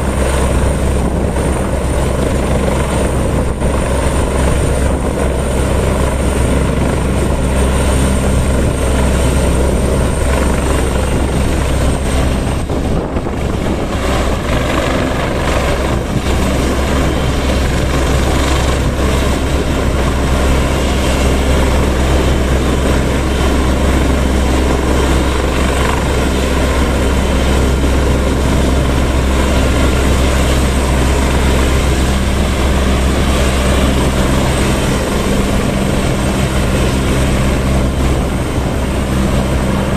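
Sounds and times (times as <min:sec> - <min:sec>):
helicopter rotor and turbine beat: 0:00.0 - 0:39.9.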